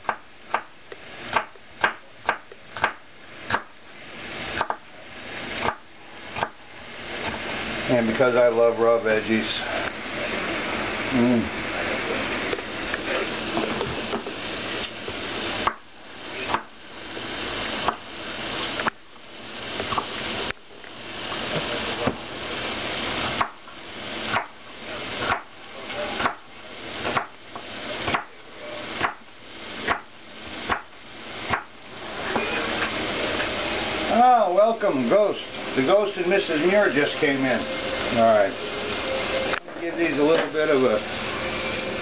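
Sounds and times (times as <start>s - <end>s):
knife chopping on wooden board: 0.0s - 0.7s, 1.3s - 3.7s, 4.6s - 4.8s, 5.6s - 6.6s, 16.5s - 16.7s, 23.3s - 23.6s, 24.3s - 24.6s, 25.2s - 25.5s, 26.2s - 26.4s, 27.0s - 27.4s, 28.0s - 28.3s, 29.0s - 29.2s, 29.8s - 30.1s, 30.7s - 30.9s, 31.5s - 31.7s
frying sizzle: 0.0s - 42.0s.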